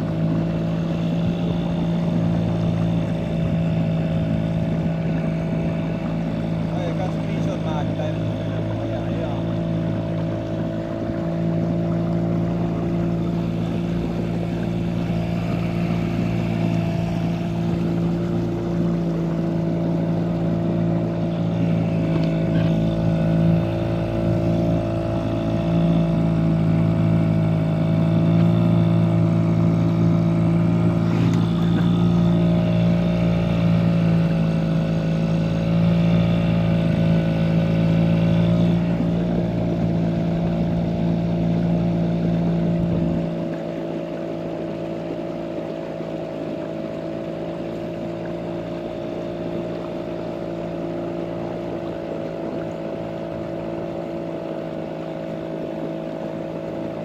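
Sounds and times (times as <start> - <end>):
boat diesel engine running: 0.0 - 57.0.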